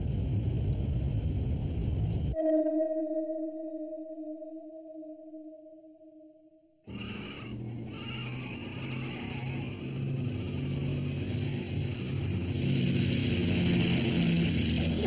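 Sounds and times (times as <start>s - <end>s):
flock of sheep bleating: 6.9s - 10.8s.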